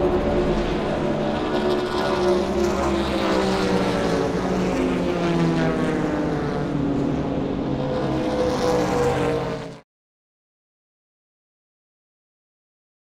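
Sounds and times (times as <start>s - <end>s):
racing car engines: 0.0s - 9.8s.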